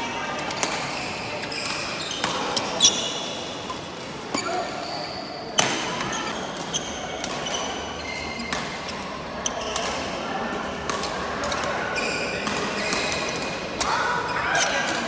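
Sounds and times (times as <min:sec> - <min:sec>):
murmur of voices: 0:00.0 - 0:15.0
court shoes squeaking: 0:00.4 - 0:10.2, 0:10.8 - 0:13.6
racket hitting shuttlecock: 0:08.4 - 0:08.8.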